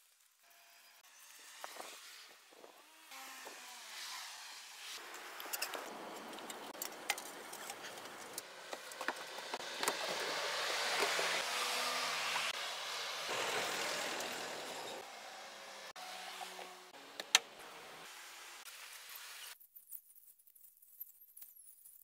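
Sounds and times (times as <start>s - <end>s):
objects clicking and tapping: 5.0s - 10.2s.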